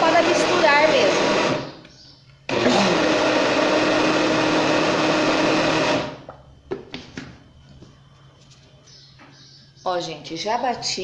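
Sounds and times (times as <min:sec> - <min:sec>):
blender running: 0:00.0 - 0:01.7, 0:02.5 - 0:06.3.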